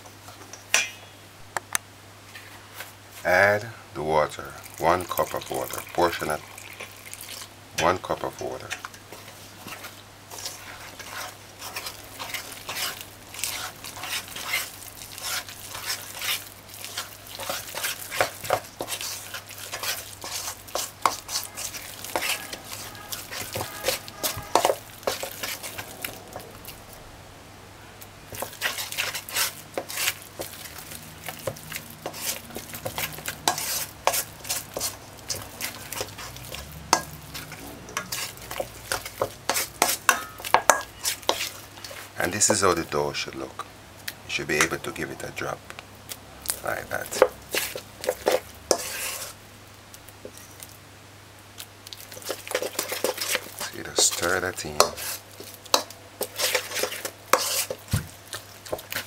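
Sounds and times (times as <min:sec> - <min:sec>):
metal spoon scraping bowl: 0:08.5 - 0:26.5, 0:28.3 - 0:30.2, 0:32.0 - 0:42.6, 0:46.9 - 0:49.4, 0:52.2 - 0:57.8.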